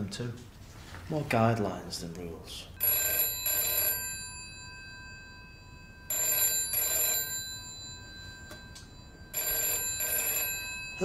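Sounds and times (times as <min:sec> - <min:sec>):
telephone ringing: 0:02.8 - 0:11.0.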